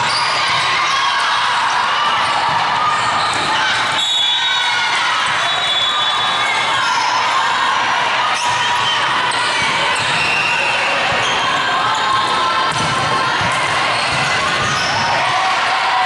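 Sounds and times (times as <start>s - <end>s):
crowd chatter and shouting: 0.0s - 16.0s
ball bouncing on court floor: 11.0s - 15.1s.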